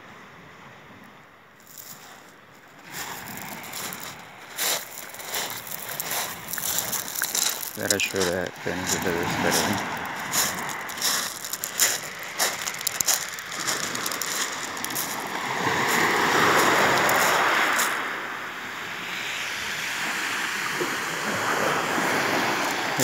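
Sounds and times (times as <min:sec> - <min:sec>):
soft surf: 0:00.0 - 0:23.0
footsteps on pebbles: 0:01.6 - 0:18.1
wave breaking on shingle: 0:02.9 - 0:18.0.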